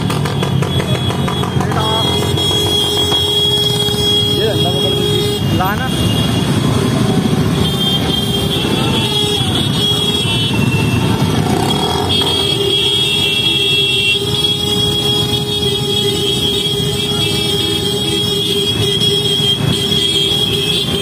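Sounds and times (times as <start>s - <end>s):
motorcycle engines running: 0.0s - 21.0s.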